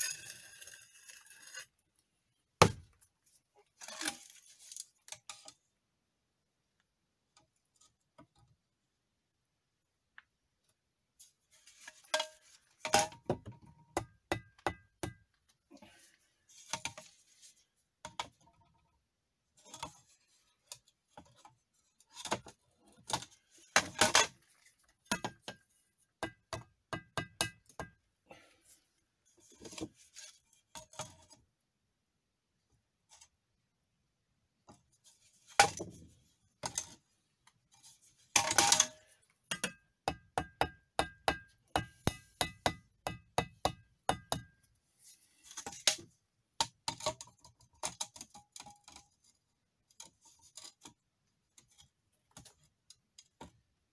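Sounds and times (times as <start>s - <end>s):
trowel scraping through mortar: 0.0s - 1.8s
trowel tapping bricks: 38.4s - 44.6s.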